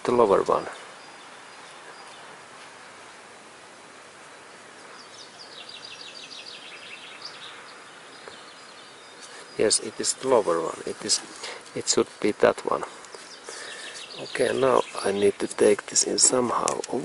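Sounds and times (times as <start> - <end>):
steady outdoor hiss: 0.0 - 17.0
bird trilling high chirps: 5.0 - 9.6.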